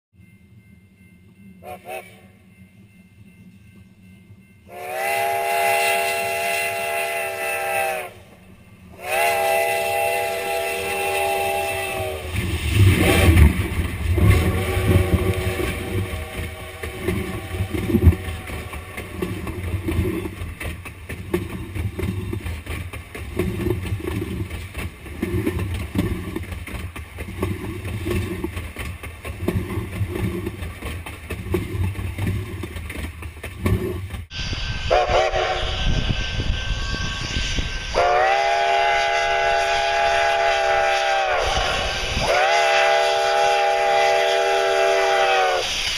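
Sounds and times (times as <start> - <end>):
steam train chime whistle: 0.2 - 13.4, 14.2 - 20.2, 34.3 - 45.9
train wheels clattering overhead: 0.4 - 34.3.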